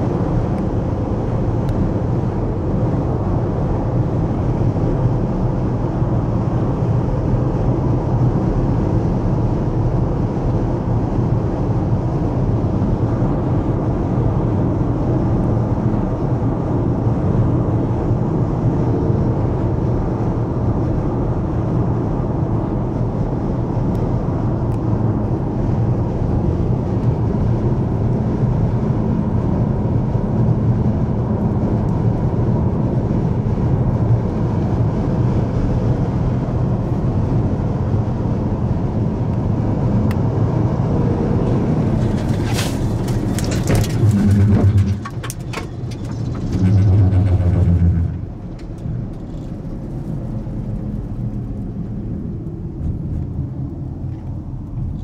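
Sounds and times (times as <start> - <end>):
car road noise at highway speed: 0.0 - 55.0.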